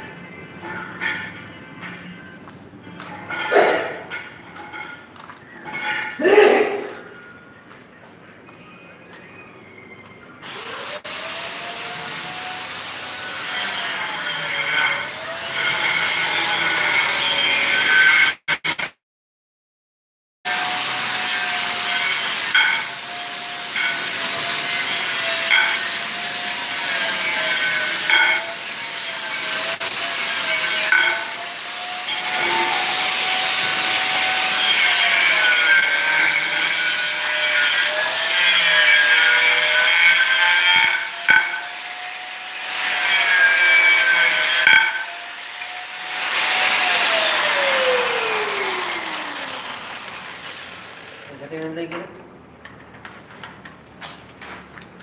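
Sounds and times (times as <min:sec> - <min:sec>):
power cutter grinding metal: 0:10.4 - 0:18.7, 0:20.5 - 0:51.7
motor whine: 0:46.9 - 0:51.3.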